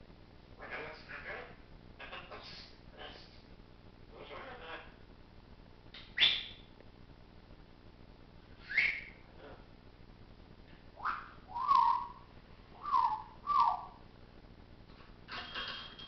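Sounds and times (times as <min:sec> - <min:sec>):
parrot whistling: 0:06.0 - 0:06.6, 0:08.6 - 0:09.2, 0:11.0 - 0:12.2, 0:12.8 - 0:14.0.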